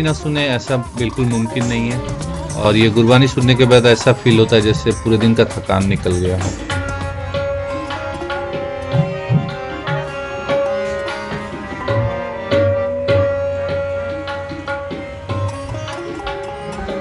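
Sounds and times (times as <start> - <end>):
long held melodic notes: 0.0 - 17.0
tabla strokes: 0.0 - 17.0.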